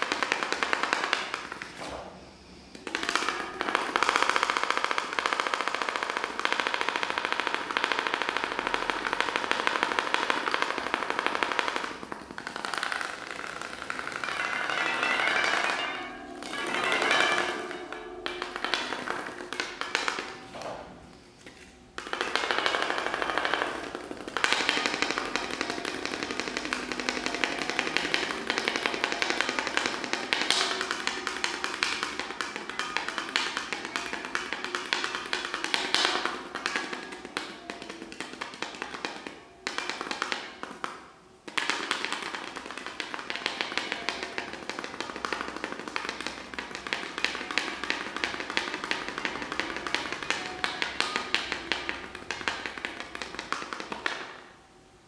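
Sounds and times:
rapid tapping and clicking: 0.0 - 1.8, 2.7 - 15.9, 21.5 - 54.4.

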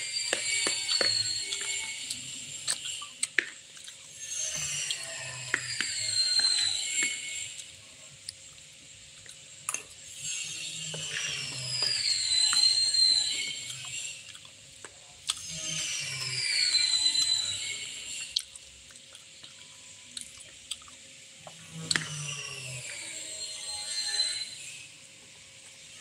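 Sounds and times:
high whistle-like sliding tones: 0.0 - 2.8, 4.3 - 7.6, 10.4 - 14.3, 15.7 - 18.4, 22.2 - 25.0.

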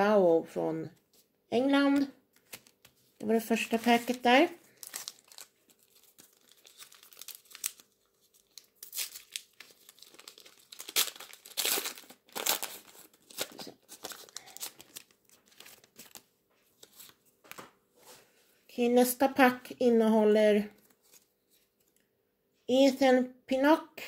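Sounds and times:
foil packet tearing and crinkling: 3.6 - 17.2.

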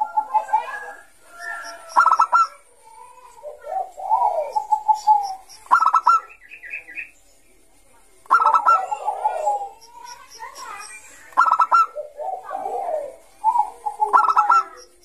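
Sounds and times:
dove cooing: 0.0 - 6.3, 8.3 - 10.0, 11.3 - 15.0.

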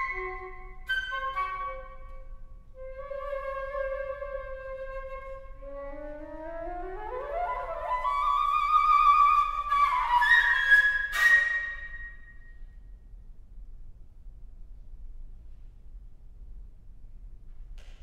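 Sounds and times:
solo flute: 0.0 - 12.7.

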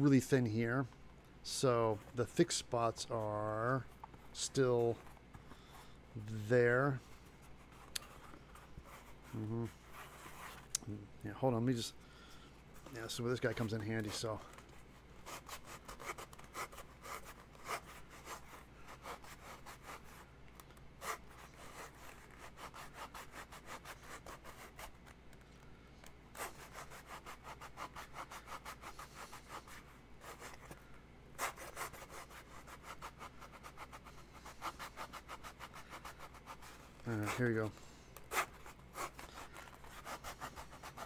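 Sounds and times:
hand tool scraping foam: 31.4 - 41.0.

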